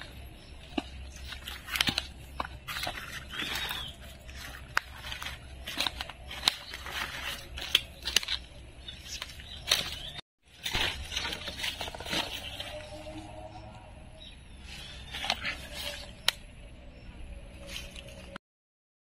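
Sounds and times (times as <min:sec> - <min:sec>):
footsteps on dry leaves: 0:00.0 - 0:13.5
vegetation rustling: 0:00.0 - 0:13.8.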